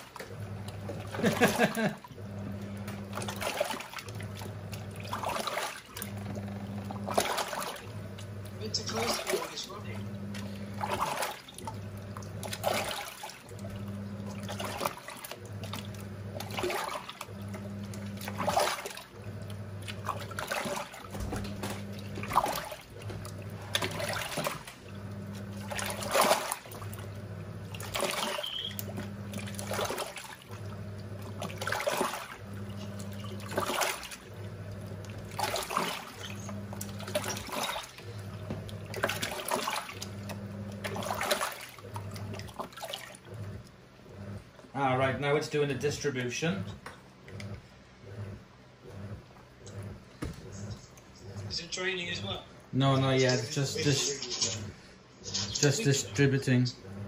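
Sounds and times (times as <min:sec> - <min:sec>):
water swishing: 0:00.0 - 0:45.0
washing machine motor humming: 0:00.0 - 0:57.0.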